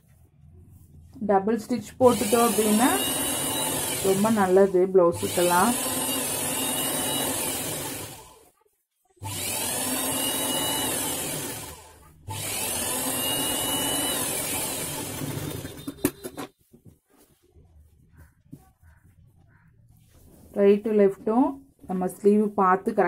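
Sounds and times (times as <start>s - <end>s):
sewing machine motor whine: 2.0s - 8.4s, 9.2s - 16.5s.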